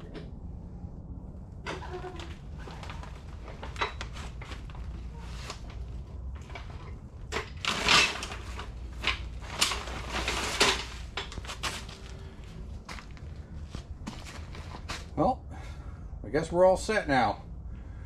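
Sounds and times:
tools clicking and clattering: 6.4s - 11.8s.

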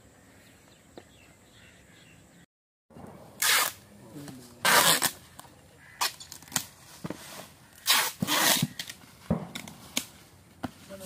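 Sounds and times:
packing tape tearing off roll: 3.4s - 3.8s, 4.6s - 5.2s, 7.8s - 10.1s.

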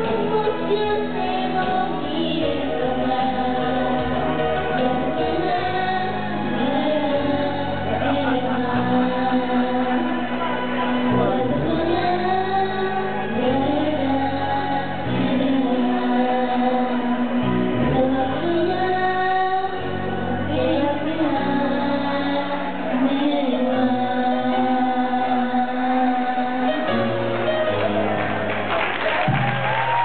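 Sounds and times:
girls singing into microphones: 0.0s - 27.2s.

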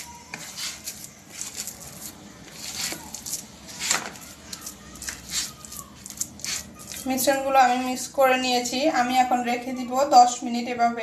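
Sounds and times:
hand kneading dough: 0.0s - 8.0s.

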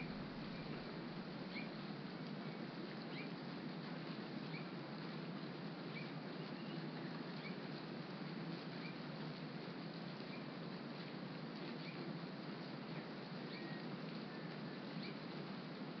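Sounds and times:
rain pattering: 0.0s - 16.0s
faint high chirp: 13.5s - 13.8s.

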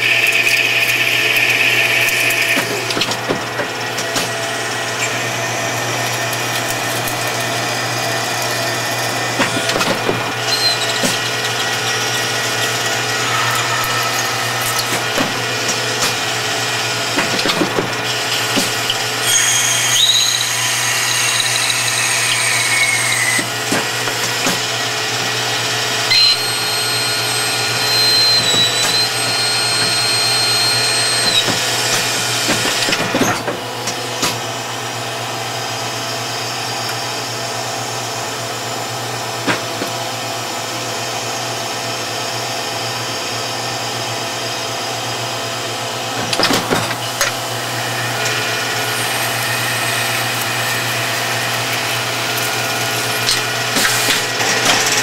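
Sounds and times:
high squealing tooling tone: 0.0s - 3.0s, 4.8s - 32.9s, 46.3s - 55.0s
lathe machine hum and cutting: 0.0s - 55.0s.

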